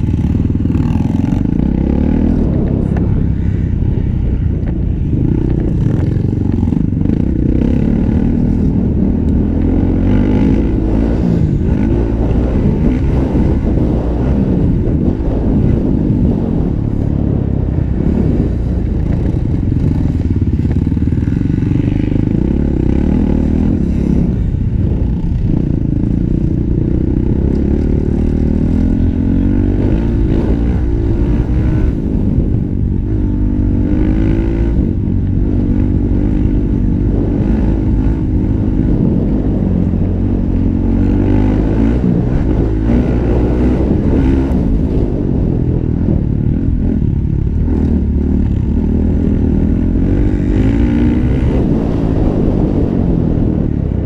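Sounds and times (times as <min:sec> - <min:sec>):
motocross bike engine revving: 0:00.0 - 0:04.1, 0:05.0 - 0:24.6, 0:25.5 - 0:53.7.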